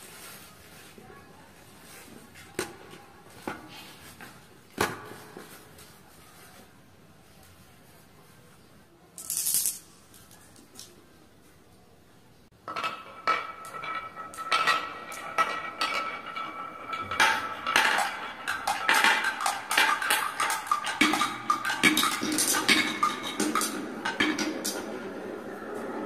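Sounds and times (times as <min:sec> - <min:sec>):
glass marbles clattering on wood: 0:09.2 - 0:10.9, 0:12.6 - 0:24.8.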